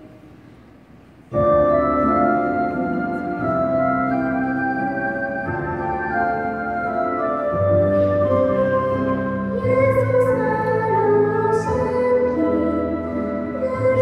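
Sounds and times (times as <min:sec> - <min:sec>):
sustained keyboard chords: 0:00.0 - 0:14.0
person singing: 0:07.8 - 0:14.0.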